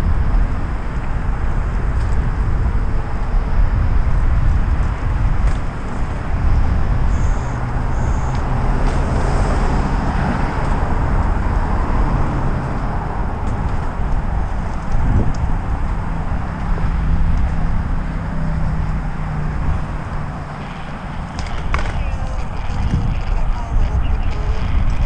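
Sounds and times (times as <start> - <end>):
low vehicle rumble: 0.0 - 25.0
wind rush on microphone: 0.0 - 25.0.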